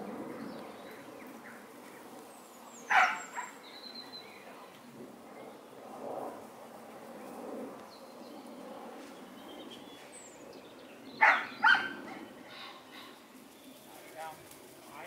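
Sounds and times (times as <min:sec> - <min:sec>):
low outdoor background: 0:00.0 - 0:15.0
dog barking: 0:02.9 - 0:03.6, 0:11.2 - 0:12.0.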